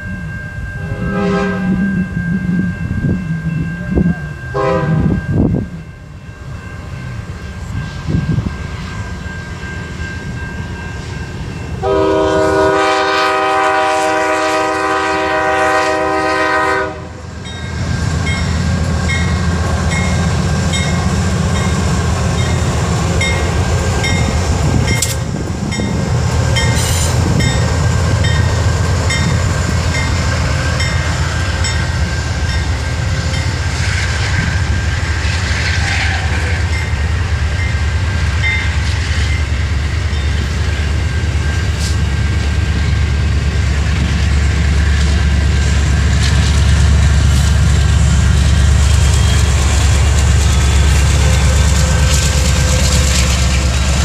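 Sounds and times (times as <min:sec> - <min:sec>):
train rumbling past: 0:00.0 - 0:54.0
train horn blasts: 0:00.8 - 0:02.1, 0:04.5 - 0:05.2, 0:11.8 - 0:17.3, 0:35.6 - 0:36.8.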